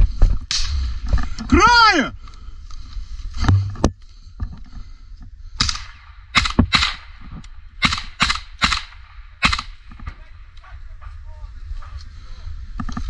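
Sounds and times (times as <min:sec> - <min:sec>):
suppressed rifle shots: 0:05.6 - 0:10.2.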